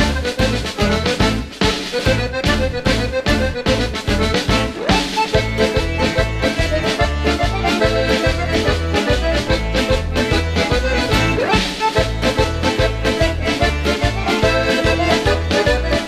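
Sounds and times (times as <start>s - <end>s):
instrumental music with bass beat: 0.0s - 16.0s.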